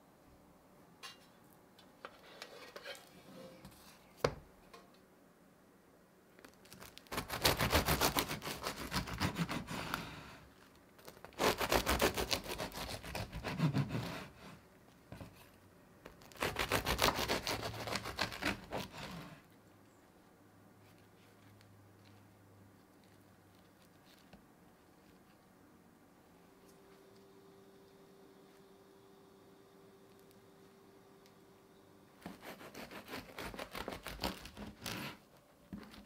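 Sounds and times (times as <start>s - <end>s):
knife sawing through crusty bread: 7.2s - 10.2s, 11.4s - 14.4s, 16.3s - 19.3s, 32.2s - 35.2s.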